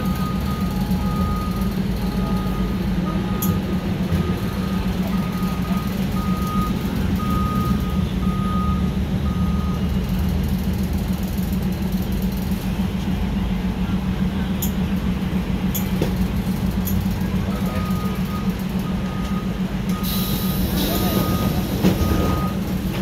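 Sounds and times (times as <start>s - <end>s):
train rumbling: 0.0s - 23.0s.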